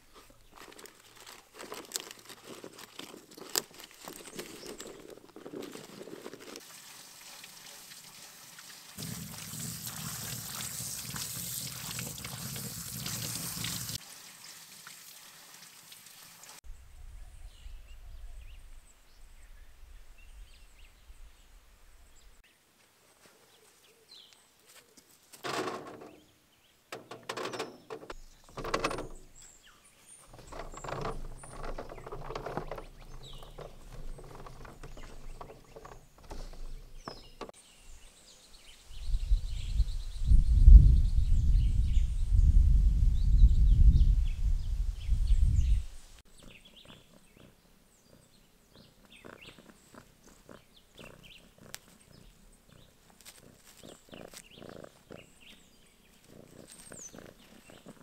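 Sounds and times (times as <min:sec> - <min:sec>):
beans rattling on a mesh rack: 0:30.3 - 0:37.5.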